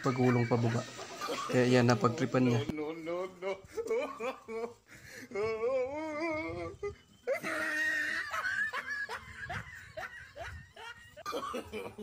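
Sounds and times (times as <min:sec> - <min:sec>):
person laughing: 0:02.9 - 0:12.0.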